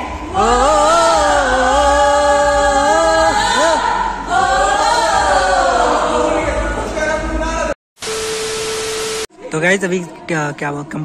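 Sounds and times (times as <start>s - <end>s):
women singing together: 0.0s - 6.9s.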